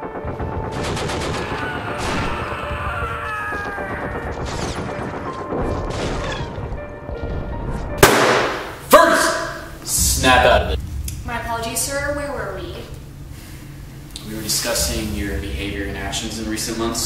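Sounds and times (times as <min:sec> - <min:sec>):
low rumble: 0:00.0 - 0:05.7, 0:09.6 - 0:17.0
gunfire volleys: 0:00.3 - 0:02.4, 0:08.0 - 0:08.8.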